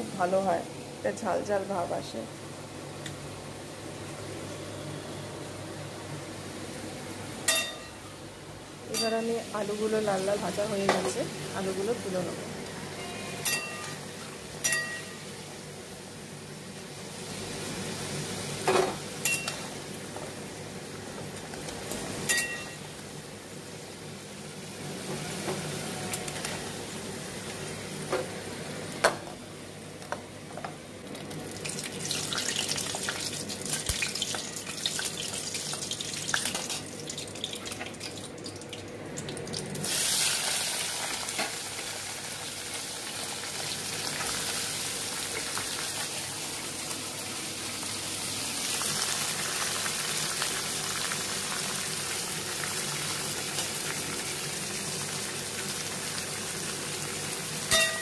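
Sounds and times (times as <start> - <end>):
metal spatula clinking on pot: 13.4 - 14.0, 14.6 - 15.2, 19.2 - 19.6, 22.3 - 22.8, 57.7 - 58.0
potatoes sizzling in hot oil: 31.3 - 38.7, 39.5 - 58.0.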